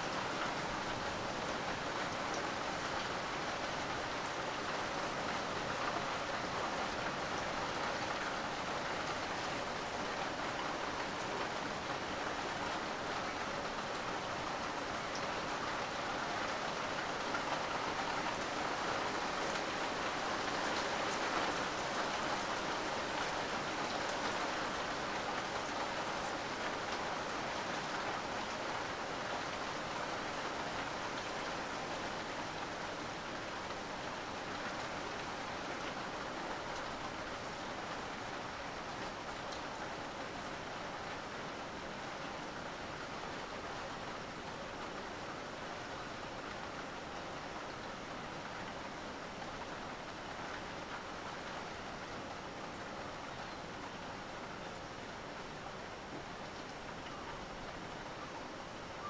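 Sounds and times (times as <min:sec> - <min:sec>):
steady rain falling: 0:00.0 - 0:59.0.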